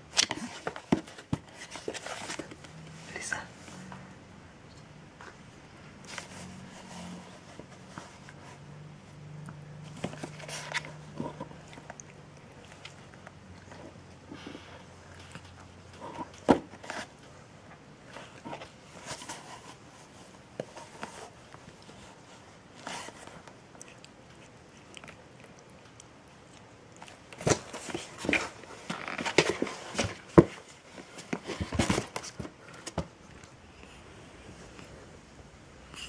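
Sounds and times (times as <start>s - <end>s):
cat wrestling in a box: 9.8s - 11.9s, 27.1s - 33.2s.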